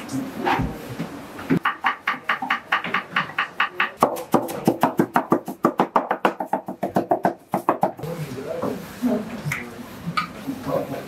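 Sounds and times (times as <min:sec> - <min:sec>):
knife chopping on wooden board: 0:01.6 - 0:08.0.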